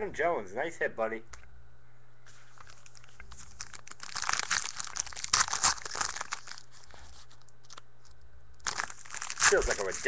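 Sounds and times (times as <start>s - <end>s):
plastic wrapping crinkling and tearing: 2.5s - 10.0s.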